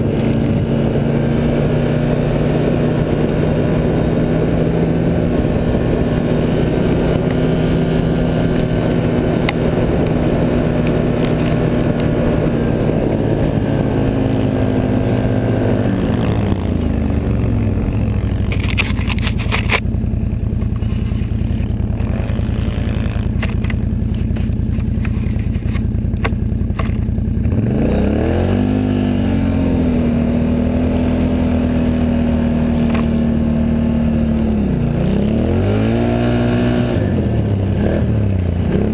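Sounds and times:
atv engine running: 0.0s - 38.9s
sharp clicks and scrapes: 18.3s - 19.9s, 20.6s - 27.1s.

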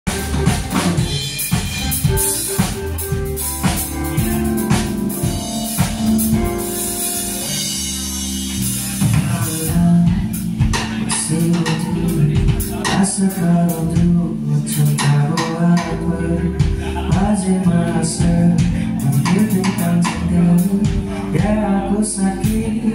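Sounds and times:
bass line: 0.0s - 22.9s
drum kit beat: 0.0s - 22.9s
electric keyboard chords: 0.0s - 22.9s.

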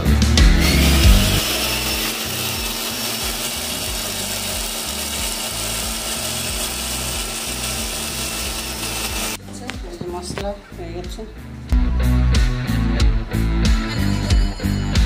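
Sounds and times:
mixer grinder running: 0.0s - 9.4s.

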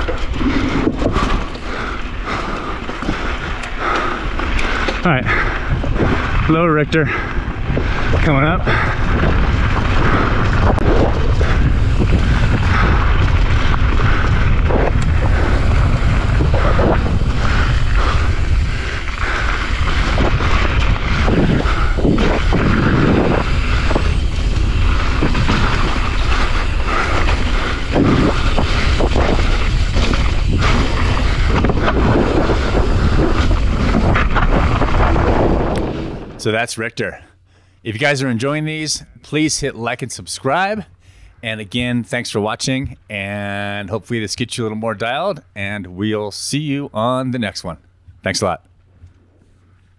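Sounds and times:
wind buffeting microphone: 0.0s - 36.4s
tyres rolling on dirt and gravel: 0.0s - 36.7s.

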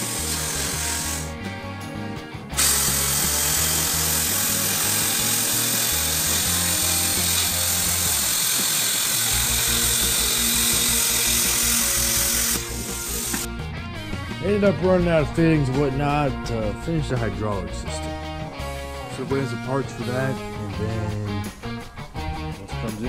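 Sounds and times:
background music: 0.0s - 23.0s
plasma cutter arc hissing: 2.6s - 13.5s.

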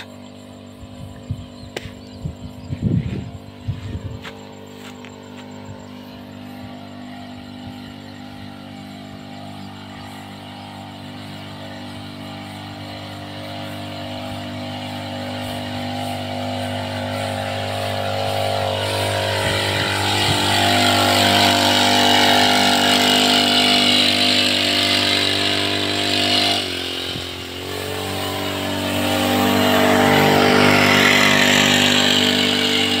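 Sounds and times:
motorised sprayer engine: 0.0s - 33.0s
spray hissing: 7.0s - 33.0s.

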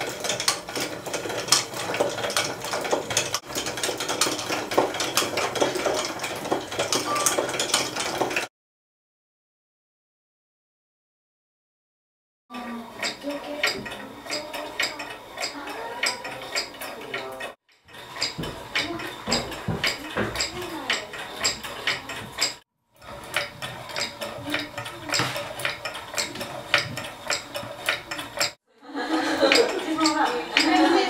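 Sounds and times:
wooden clicks and knocks: 13.0s - 28.6s.

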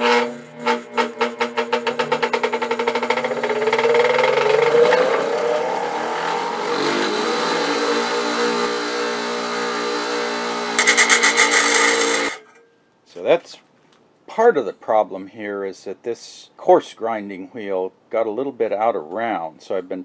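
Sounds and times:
bench grinder motor whining: 0.0s - 12.5s.

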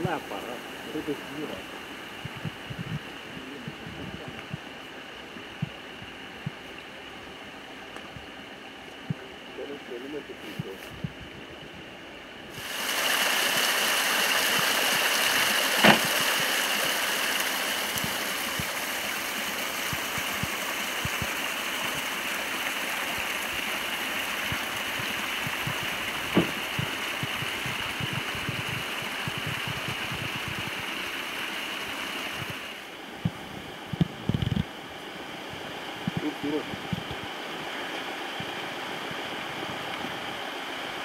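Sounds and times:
steady rushing hiss: 0.0s - 41.0s
sharp knock: 15.8s - 16.1s.

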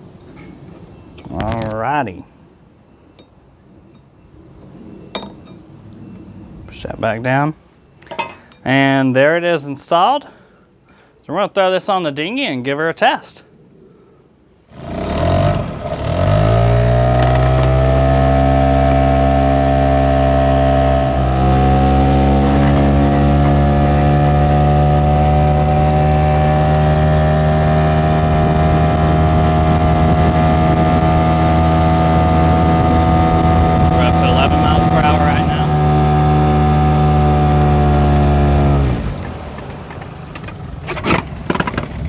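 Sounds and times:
outboard motor running: 14.7s - 42.0s.

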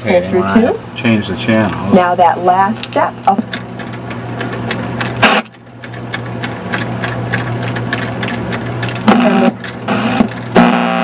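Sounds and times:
tuning motor humming: 0.0s - 11.0s
tv sound bursts: 5.2s - 5.5s, 9.0s - 11.0s.

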